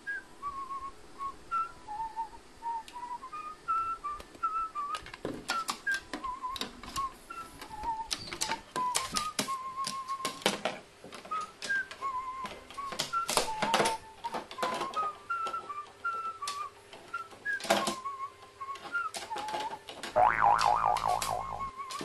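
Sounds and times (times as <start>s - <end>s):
whistled melody: 0.0s - 10.6s, 11.2s - 22.0s
wavering trilling tone: 20.2s - 21.7s.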